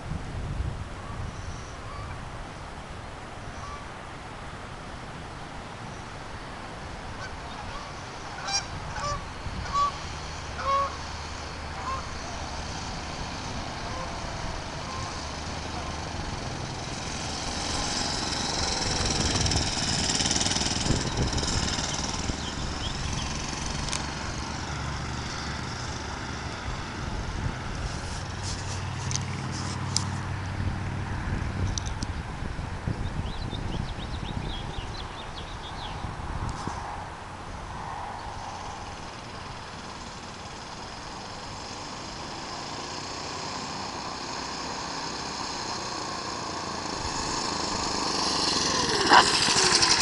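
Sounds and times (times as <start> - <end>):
small engine running: 7.5 - 32.0, 37.8 - 50.0.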